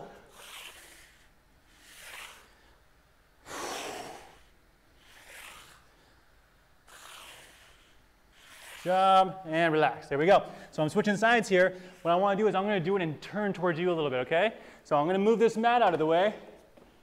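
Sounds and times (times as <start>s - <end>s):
man breathing hard: 3.4s - 5.8s.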